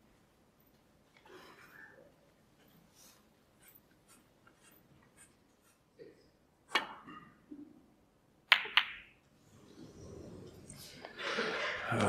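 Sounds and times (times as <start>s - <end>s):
snooker balls clicking: 8.5s - 9.2s.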